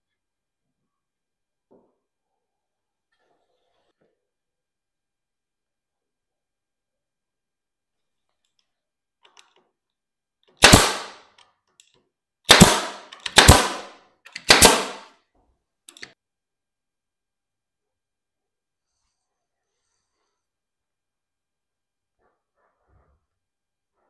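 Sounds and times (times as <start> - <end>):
sharp bangs: 10.6 - 11.2, 12.5 - 15.1.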